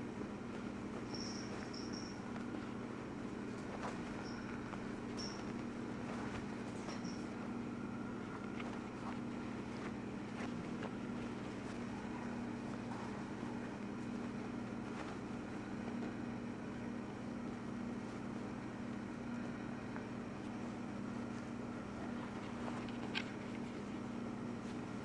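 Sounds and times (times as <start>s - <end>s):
steady low hum: 0.0s - 25.0s
cotton sheet rustling: 0.5s - 16.2s.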